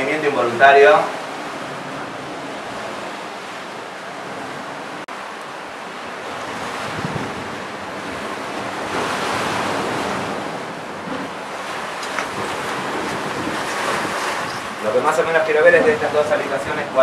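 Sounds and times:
wind buffeting microphone: 1.1 - 17.0.

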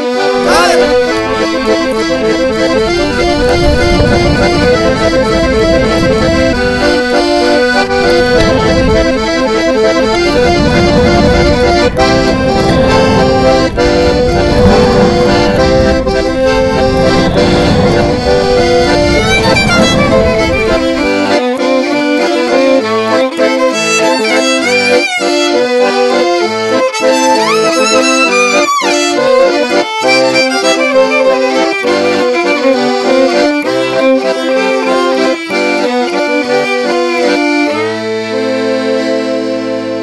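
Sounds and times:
instrumental children's song: 0.0 - 40.0
quick sliding notes: 0.2 - 26.2.

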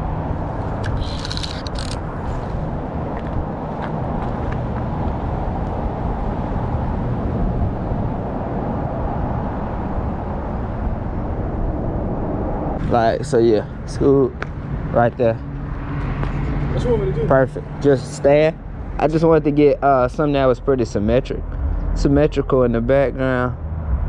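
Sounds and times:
sharp clicks: 0.8 - 2.0.

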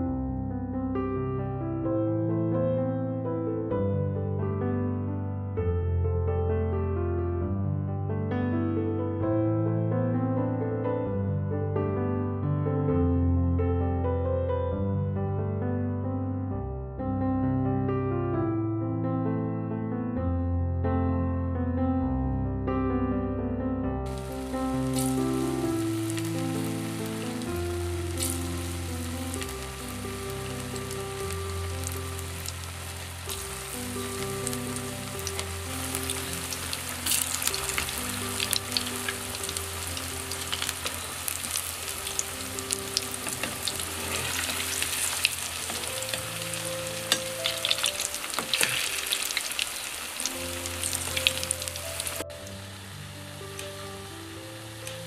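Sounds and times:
soft background music: 21.4 - 55.0
deep-frying sizzling and popping: 24.1 - 55.0.

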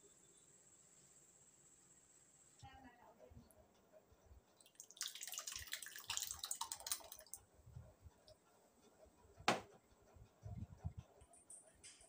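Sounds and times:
thick soup pouring into bowl: 4.7 - 7.3.

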